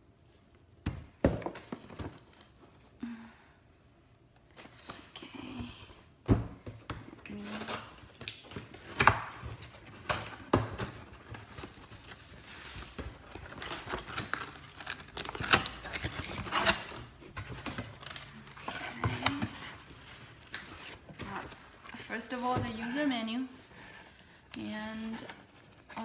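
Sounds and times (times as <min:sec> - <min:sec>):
box knocks and thumps: 0:00.8 - 0:02.2
cardboard rustling and scraping: 0:07.3 - 0:26.0.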